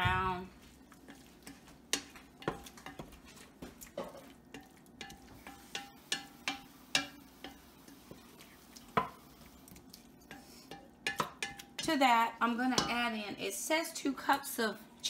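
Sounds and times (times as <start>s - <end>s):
spoon knocking and scraping pot: 1.0s - 9.4s, 10.2s - 12.0s, 12.7s - 13.1s.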